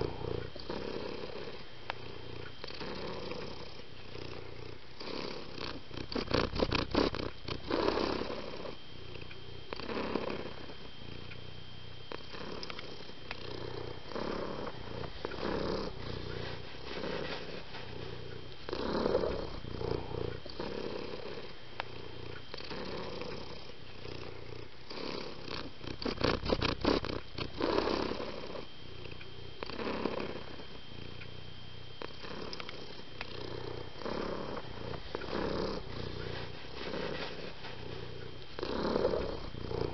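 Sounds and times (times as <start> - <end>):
cat purring: 0.0 - 39.9.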